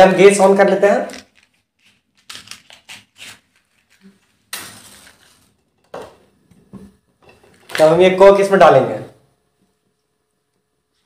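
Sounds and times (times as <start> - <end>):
match striking and flaring: 4.5 - 5.5.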